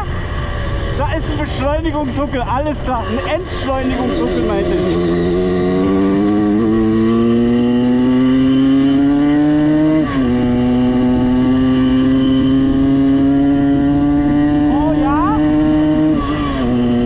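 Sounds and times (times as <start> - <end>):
two-stroke moped engine revving: 2.9 - 17.0.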